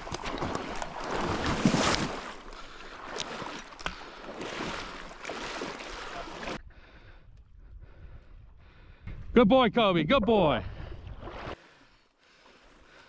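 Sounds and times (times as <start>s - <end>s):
dog splashing and swimming: 0.0s - 6.6s.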